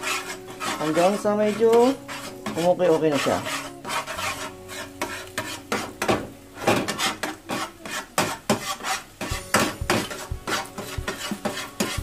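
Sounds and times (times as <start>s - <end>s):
spatula scraping a frying pan: 0.0s - 12.0s.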